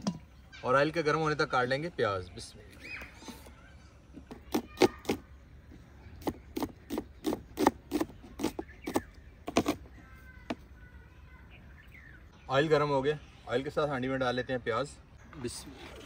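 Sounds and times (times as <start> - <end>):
knife chopping onion: 6.2 - 9.8.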